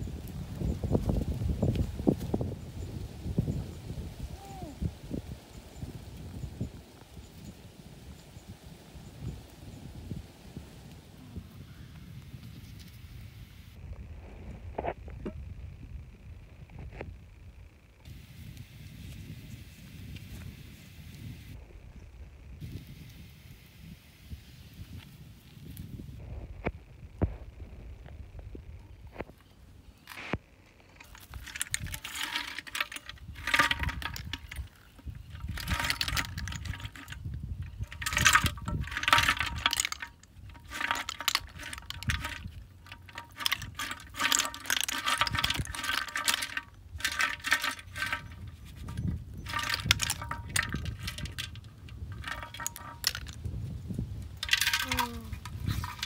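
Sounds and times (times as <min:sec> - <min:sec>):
snail shells clinking and rattling: 0:31.0 - 0:53.5, 0:54.3 - 0:56.0.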